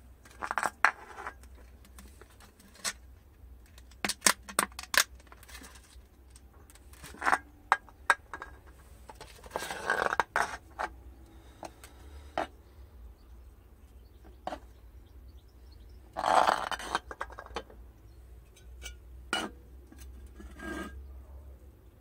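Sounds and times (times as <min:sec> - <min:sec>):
cans clicking and knocking: 0:03.7 - 0:05.7, 0:07.0 - 0:11.0, 0:16.1 - 0:17.8
can scraping on tiled floor: 0:09.2 - 0:10.9, 0:16.2 - 0:17.6, 0:20.2 - 0:21.0.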